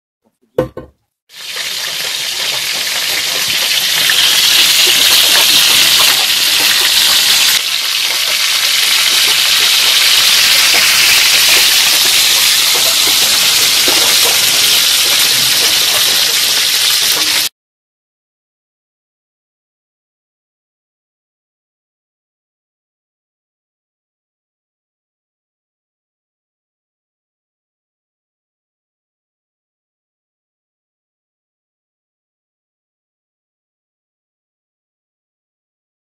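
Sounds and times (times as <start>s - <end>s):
short knock: 0.6s - 1.0s
sausages sizzling in a frying pan: 1.3s - 17.5s.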